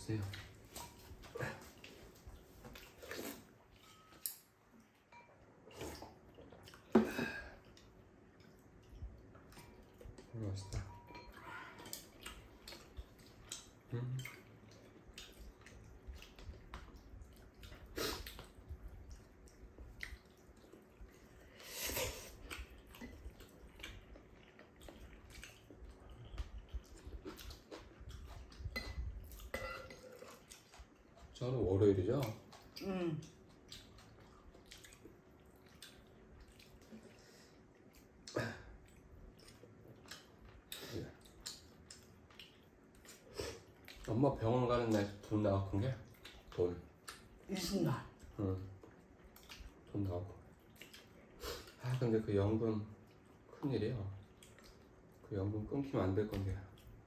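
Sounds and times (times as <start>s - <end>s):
wet chewing and slurping: 0.2s - 4.9s, 10.9s - 31.4s, 32.2s - 44.2s, 48.1s - 52.1s, 54.2s - 55.3s.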